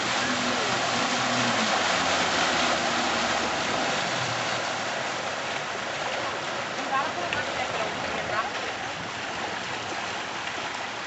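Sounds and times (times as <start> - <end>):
motorboat engine drone: 0.0 - 10.9
rushing water: 0.0 - 11.0.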